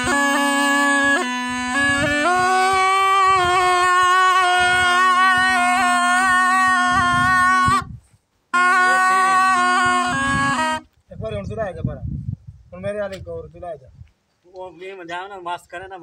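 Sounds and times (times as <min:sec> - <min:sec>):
gourd wind pipe melody: 0:00.0 - 0:11.8.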